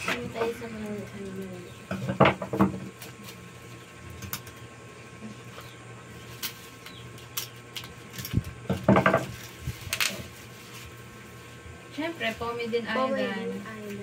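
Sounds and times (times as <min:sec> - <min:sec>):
plastic packaging crinkling: 0:06.3 - 0:11.3
loud knocks: 0:08.7 - 0:09.3.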